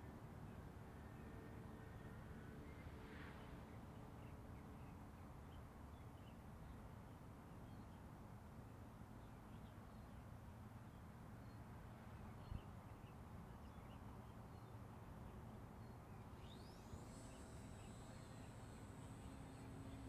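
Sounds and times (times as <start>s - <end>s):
faint bird chirps: 12.2s - 20.0s
faint high whine: 13.6s - 20.0s.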